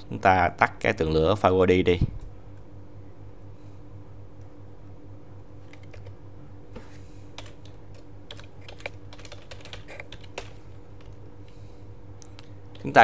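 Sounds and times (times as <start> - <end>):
steady low hum: 0.0 - 13.0
computer keyboard typing: 5.7 - 6.1, 7.3 - 11.2.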